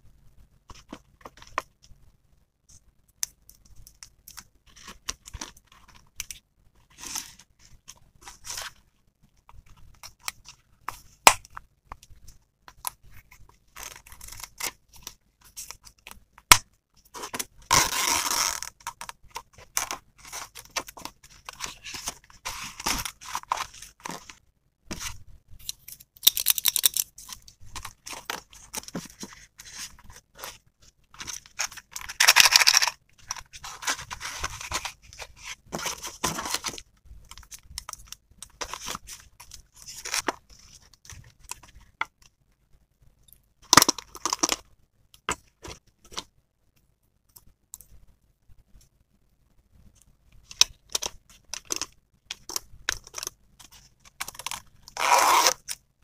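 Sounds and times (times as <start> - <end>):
plastic pieces clicking and tapping: 25.7 - 27.2
items scraping and rustling: 26.9 - 42.0.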